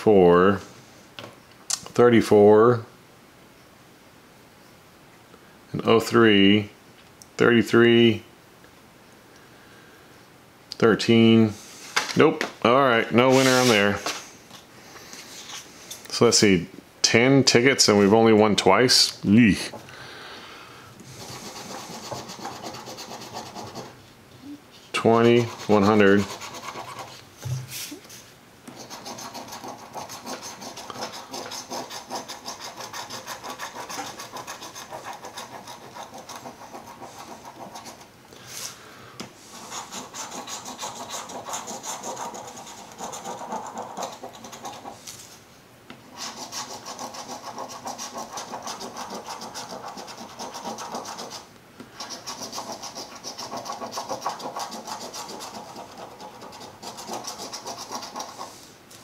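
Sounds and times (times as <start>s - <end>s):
coin scratching lottery ticket: 21.2s - 24.0s, 25.0s - 27.1s, 28.7s - 38.0s, 39.5s - 45.0s, 46.1s - 58.5s.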